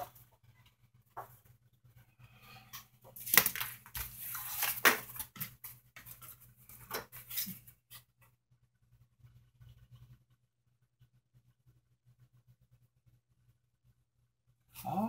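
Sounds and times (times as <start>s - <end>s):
cardboard rustling and scraping: 3.1s - 8.0s.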